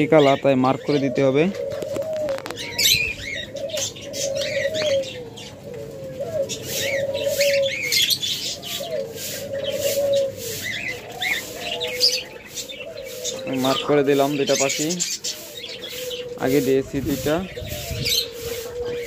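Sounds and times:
doves cooing: 0.0 - 19.0
bird chirps: 6.4 - 19.0.

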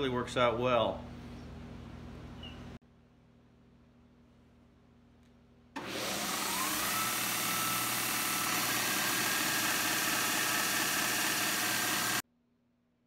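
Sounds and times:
belt sander motor whine: 5.8 - 12.2.

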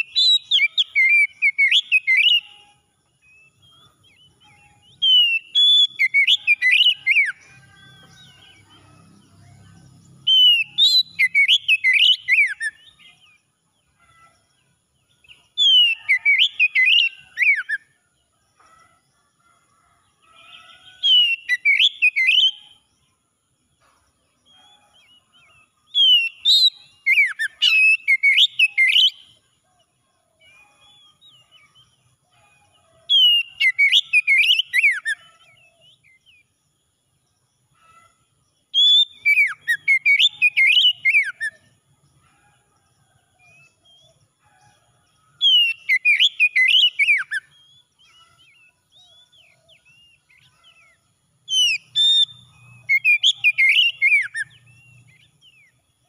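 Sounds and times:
bird singing whistled phrases: 0.0 - 2.8, 4.3 - 7.4, 10.3 - 13.2, 21.1 - 22.7, 26.0 - 29.3, 33.2 - 35.3, 38.8 - 41.6, 45.4 - 47.8, 51.5 - 55.7.

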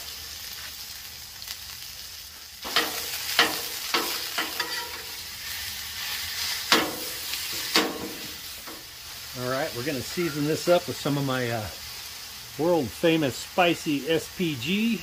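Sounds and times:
meat sizzling on griddle: 0.0 - 15.0
metal spatula scraping and clacking: 2.6 - 5.1.

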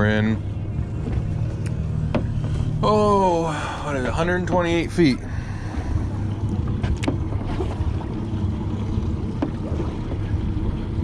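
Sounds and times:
low steady rumble: 0.0 - 11.0
water against hull: 0.0 - 11.0.

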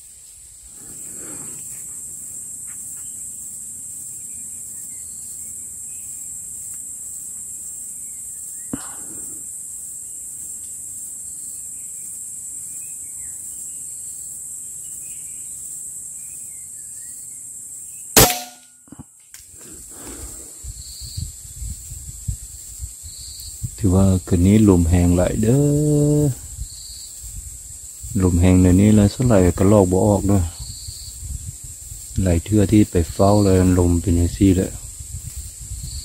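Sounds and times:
faint chirps: 0.0 - 31.3
night insects droning: 0.0 - 36.0
gunshot: 18.2 - 18.6.

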